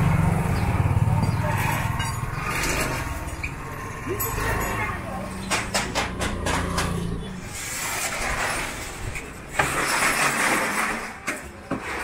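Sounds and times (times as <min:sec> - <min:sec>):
motorbike engine running: 0:00.0 - 0:07.3.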